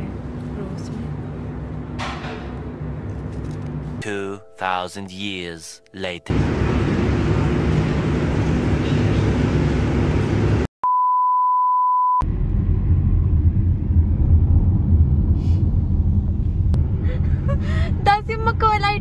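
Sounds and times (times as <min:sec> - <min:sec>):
car road noise rumble: 0:12.2 - 0:19.0.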